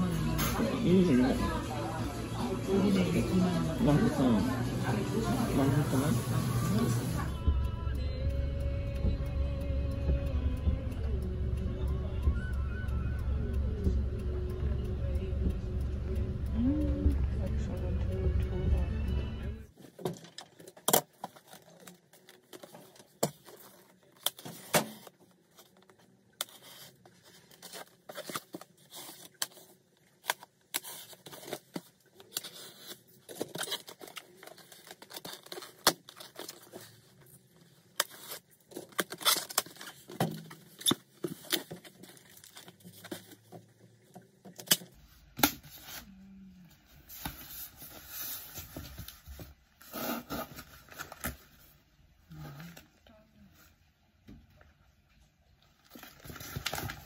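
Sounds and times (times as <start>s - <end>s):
plastic wrap crinkling and tearing: 19.8s - 43.5s, 55.8s - 57.0s.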